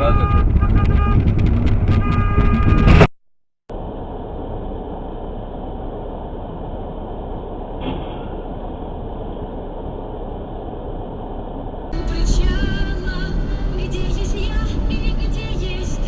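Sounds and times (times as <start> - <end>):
loud road noise with tone: 0.0 - 3.1, 3.7 - 16.0
muffled car cabin hum: 3.7 - 16.0.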